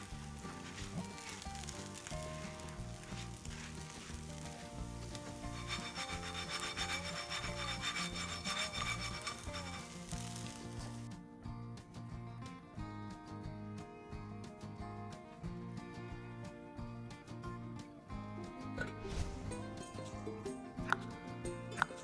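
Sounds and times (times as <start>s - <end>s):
scraping rasping sound: 0.0s - 11.1s
background music: 0.0s - 22.0s.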